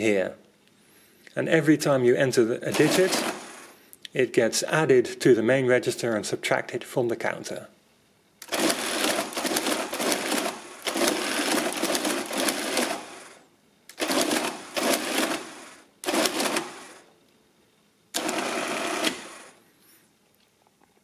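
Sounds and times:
mechanical calculator gearwork running: 2.7 - 3.7, 8.4 - 17.1, 18.2 - 19.6.

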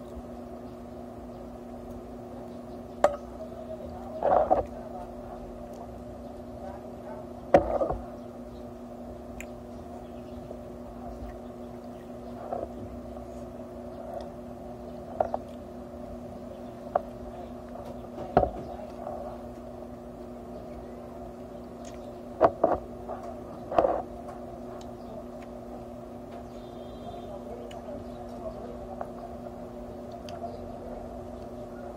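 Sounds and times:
background hum: 0.0 - 31.9.

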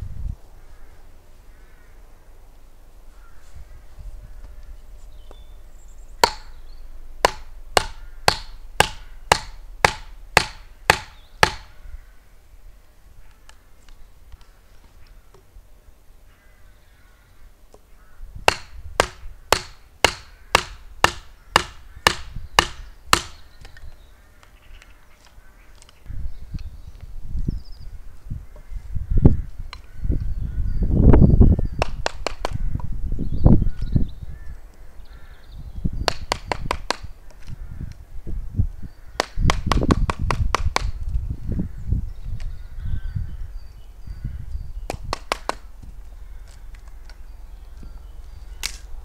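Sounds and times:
wood billet knocking hatchet head: 6.2 - 6.6, 7.2 - 11.7, 18.5 - 23.4, 31.8 - 32.9, 36.1 - 37.1, 39.2 - 41.0.

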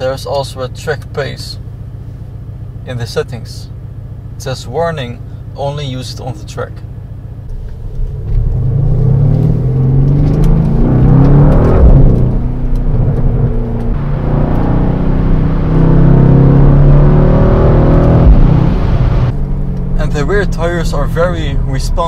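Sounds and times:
low thumps: 7.4 - 20.0
car engine accelerating hard: 7.4 - 22.0.

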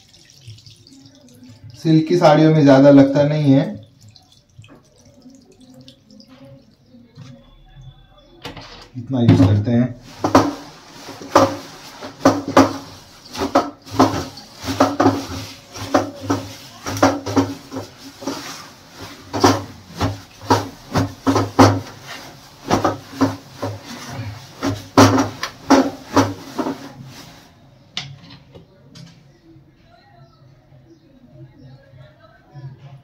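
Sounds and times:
wet cloth rubbing and squeezing: 0.0 - 2.0, 2.8 - 6.8, 10.0 - 27.6.

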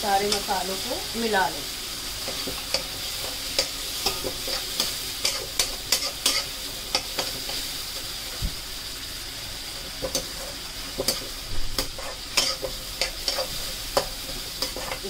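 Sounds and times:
food sizzling in a pan: 0.0 - 15.0
metal spoon scraping a pan: 2.2 - 7.7, 10.0 - 15.0.

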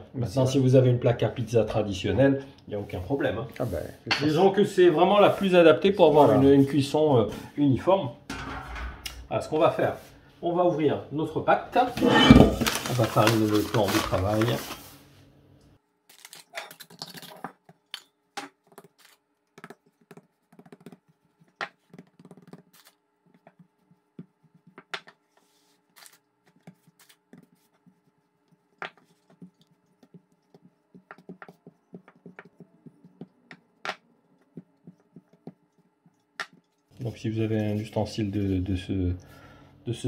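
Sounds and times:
hands patting dough on wood: 18.4 - 38.0.

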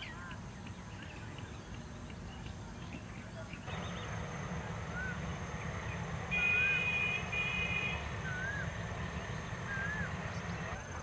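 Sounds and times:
loud high steady tone: 3.7 - 10.8
rising and falling whistles: 3.8 - 10.8.

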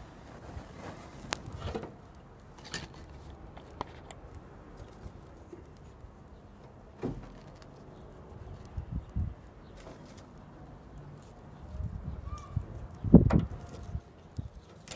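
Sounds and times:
dry grass tinder crackling: 7.3 - 14.9.

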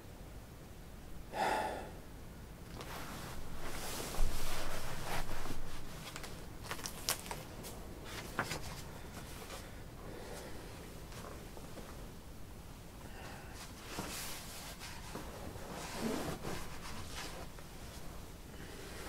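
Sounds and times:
book pages turning and rustling: 2.7 - 9.7
sharp paper clicks: 6.1 - 7.5.

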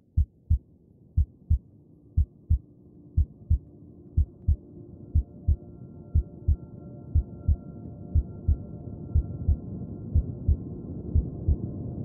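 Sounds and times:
heartbeat thumps: 0.1 - 0.6, 1.2 - 1.6, 2.2 - 2.6, 3.2 - 3.6, 4.2 - 4.6, 5.2 - 5.6, 8.2 - 8.6, 9.2 - 9.6, 10.2 - 10.6, 11.2 - 11.6.

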